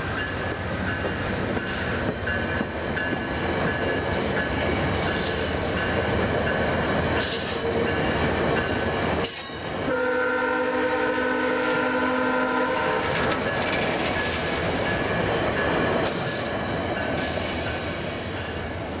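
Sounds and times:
train wheels clacking on rails: 0:00.0 - 0:10.0, 0:13.0 - 0:19.0
train horn chord: 0:09.9 - 0:13.2.

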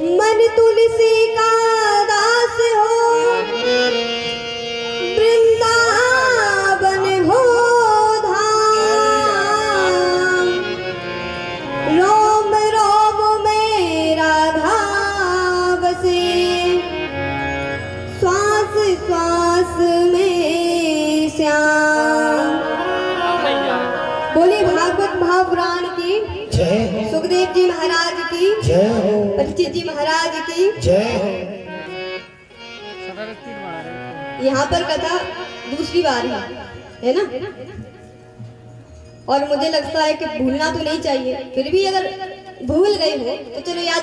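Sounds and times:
woman singing into a microphone: 0:00.0 - 0:03.9, 0:05.0 - 0:10.8, 0:11.8 - 0:17.1, 0:18.1 - 0:31.4
instrumental accompaniment: 0:00.0 - 0:44.0.

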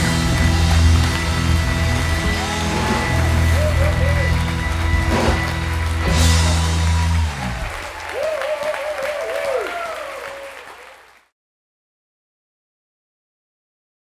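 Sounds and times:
rock band closing chord: 0:00.0 - 0:08.2
audience applause and cheering: 0:00.0 - 0:11.3.

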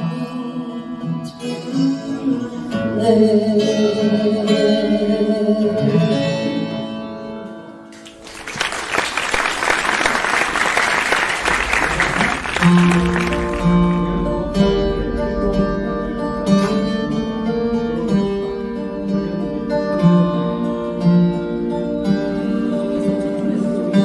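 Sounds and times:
woman singing: 0:00.0 - 0:06.8
acoustic guitar picking: 0:00.0 - 0:08.1, 0:12.2 - 0:24.0
acoustic guitar: 0:00.0 - 0:24.0
audience applauding: 0:08.0 - 0:13.9.

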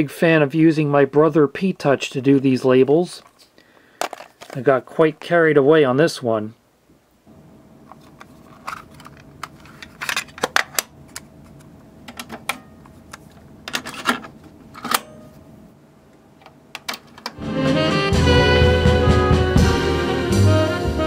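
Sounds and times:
plastic cassette case clicks: 0:08.0 - 0:15.1.

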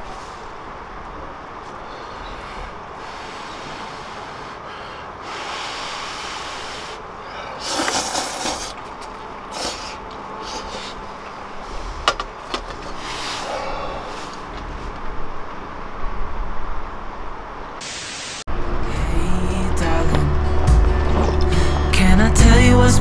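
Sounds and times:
person slurping noodles: 0:05.4 - 0:08.9, 0:09.5 - 0:11.0.

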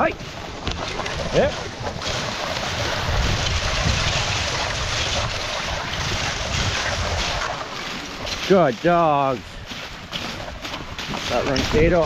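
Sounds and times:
sled runners sliding over snow: 0:00.0 - 0:12.0
wind buffeting microphone: 0:00.0 - 0:12.0.

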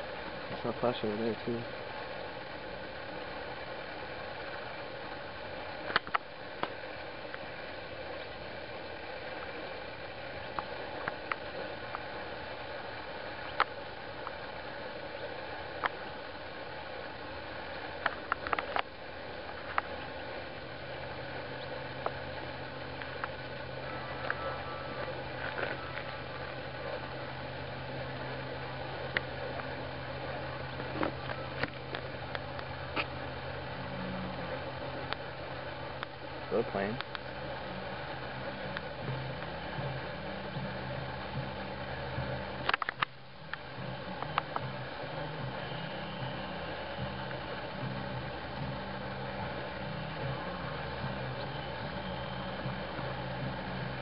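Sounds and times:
microphone hiss: 0:00.0 - 0:54.0.

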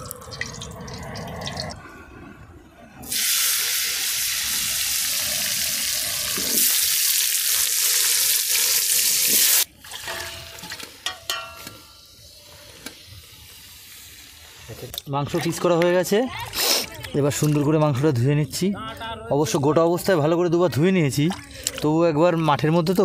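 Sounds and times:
vegetables sizzling in hot oil: 0:03.1 - 0:10.6.

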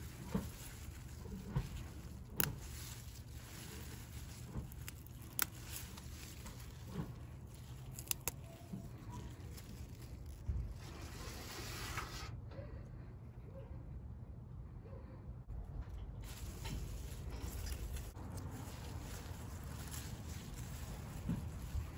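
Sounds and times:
parsley stems snapping: 0:00.0 - 0:10.4, 0:16.2 - 0:21.9
steady low rumble: 0:00.0 - 0:11.2, 0:12.8 - 0:21.9
leaves rustling: 0:00.0 - 0:12.2, 0:16.2 - 0:21.9.

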